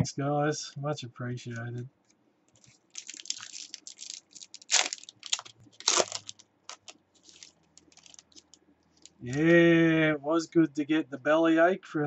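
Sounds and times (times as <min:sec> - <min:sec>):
loud foil crunches: 0:02.6 - 0:09.2
foil wrapper crinkling and tearing: 0:02.6 - 0:09.5.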